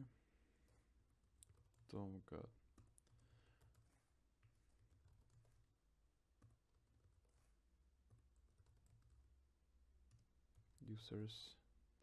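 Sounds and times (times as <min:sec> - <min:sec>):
computer keyboard keystrokes: 0:02.7 - 0:04.0, 0:08.1 - 0:09.3.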